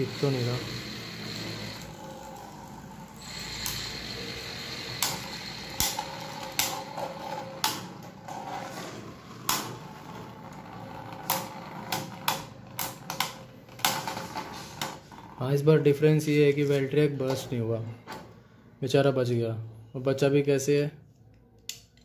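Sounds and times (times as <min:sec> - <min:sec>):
spinning tops whirring: 0:00.0 - 0:15.4.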